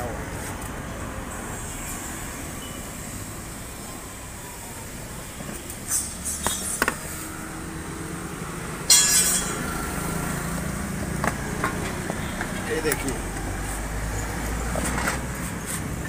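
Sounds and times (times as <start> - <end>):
traffic hum: 0.0 - 16.0
sharp clink with ringing: 8.9 - 9.8.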